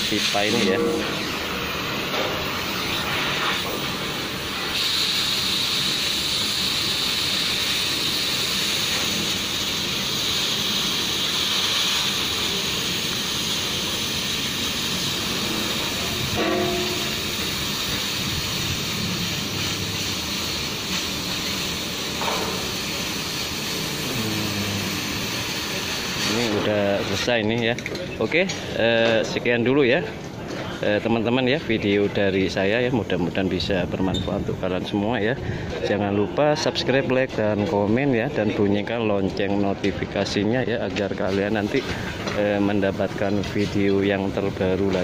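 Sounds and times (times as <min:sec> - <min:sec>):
cutting torch hissing: 0:00.0 - 0:27.5.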